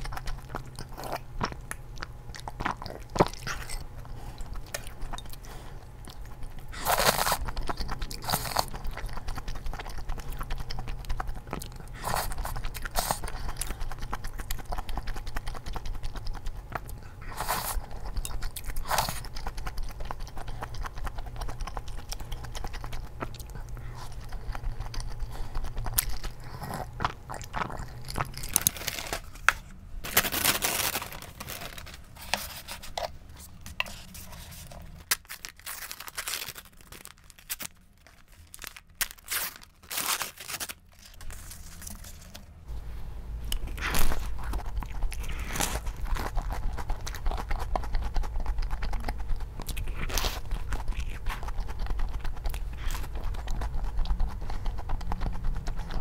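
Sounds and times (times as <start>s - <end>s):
chewing and slurping: 0.0s - 29.6s, 43.5s - 56.0s
paper wrapping crinkling: 28.5s - 33.0s, 33.9s - 42.5s.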